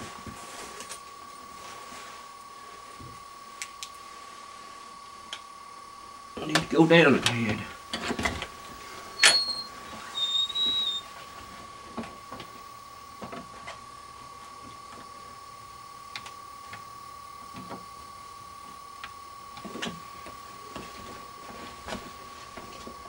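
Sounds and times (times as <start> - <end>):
high-pitched hum: 0.0 - 23.0
short high squeak: 9.2 - 11.1.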